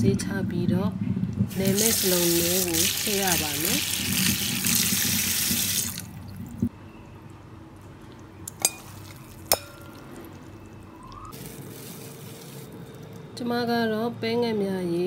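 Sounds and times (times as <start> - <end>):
tap water running into strainer: 1.5 - 6.1.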